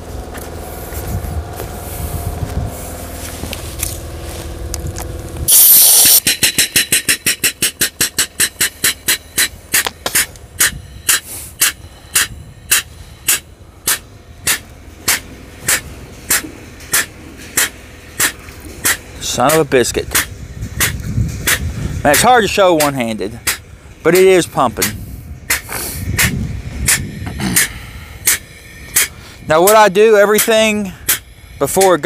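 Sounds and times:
low steady hum: 0.0s - 32.0s
pump exhaust puffs: 0.0s - 32.0s
loud hiss of air: 0.7s - 3.4s, 5.5s - 19.3s, 24.8s - 29.5s.

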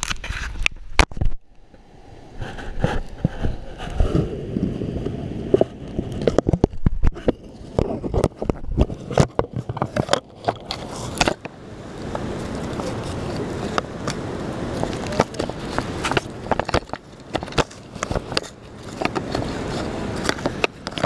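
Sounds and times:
hands knocking and scraping on case: 5.6s - 11.5s, 14.8s - 19.5s
dry leaves rustling: 10.0s - 21.0s.

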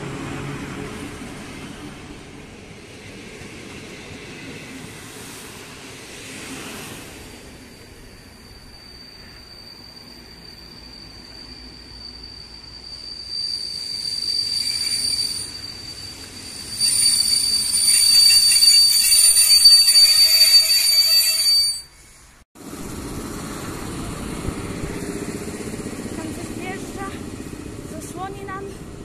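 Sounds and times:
train rumbling: 0.0s - 29.0s
train brakes squealing: 6.4s - 22.4s.

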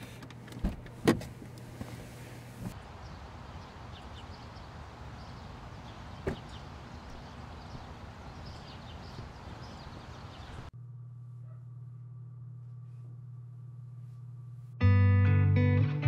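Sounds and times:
small birds chirping: 2.8s - 10.7s
steady low hum: 9.3s - 14.8s.

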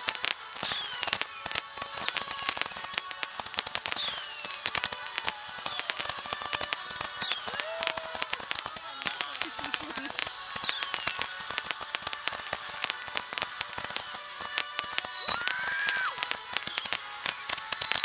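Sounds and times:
crackling firework pops: 0.0s - 18.0s
whistling firework shots: 0.0s - 18.0s.

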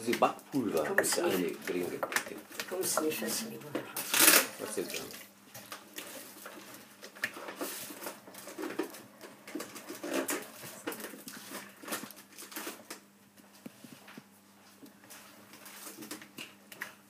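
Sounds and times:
hand beating batter in a bowl: 0.0s - 3.2s.

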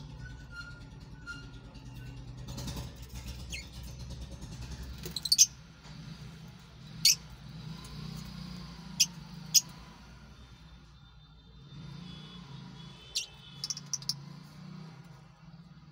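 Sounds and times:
lovebirds chirping: 5.0s - 5.5s, 13.2s - 14.3s.

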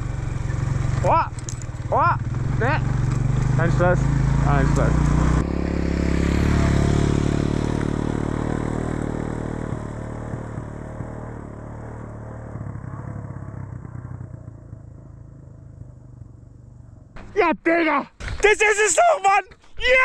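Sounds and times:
motorcycle engine: 0.0s - 20.0s.

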